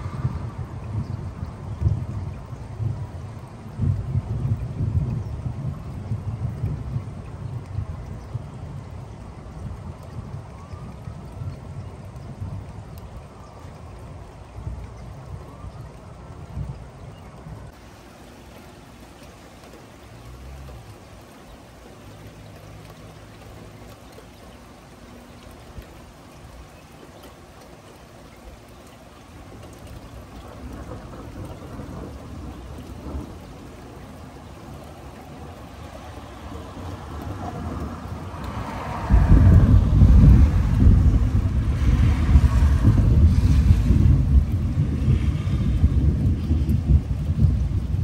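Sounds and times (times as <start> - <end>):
low thunder rumbling: 0.0 - 22.1, 22.9 - 48.0
steady rain: 0.0 - 48.0.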